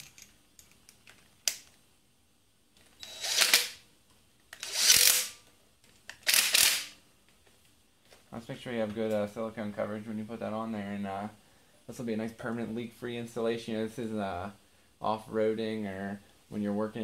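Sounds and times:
ratchet wrench click: 4.6s - 5.3s.

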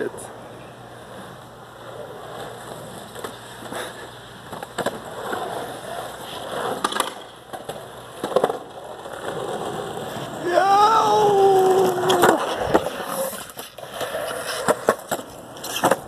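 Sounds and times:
skateboard wheels rumbling: 0.2s - 16.0s
skateboard deck clacking on ground: 2.4s - 10.4s, 11.1s - 16.0s.

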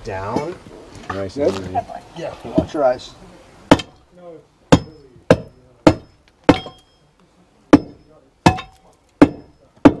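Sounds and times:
steel bar striking concrete: 4.7s - 7.0s, 7.8s - 10.0s
metallic ring: 6.5s - 7.1s.

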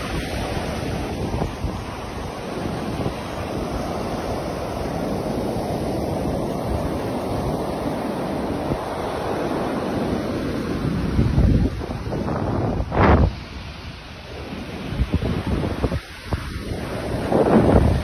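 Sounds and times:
ocean surf breaking: 0.0s - 18.0s
wind buffeting microphone: 0.0s - 18.0s.

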